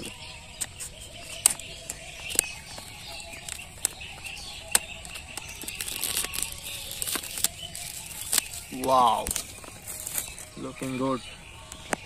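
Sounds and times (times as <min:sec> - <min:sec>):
plastic shrink wrap crinkling: 0:00.6 - 0:11.0
scissors snipping: 0:04.6 - 0:10.5.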